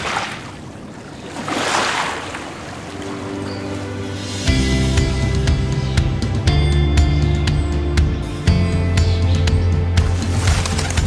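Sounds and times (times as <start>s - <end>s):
music with beat and deep bass: 3.8s - 11.0s.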